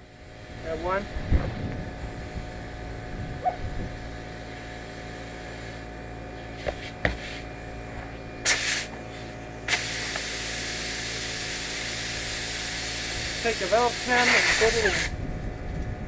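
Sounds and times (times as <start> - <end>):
compressed air hissing: 3.9 - 15.2.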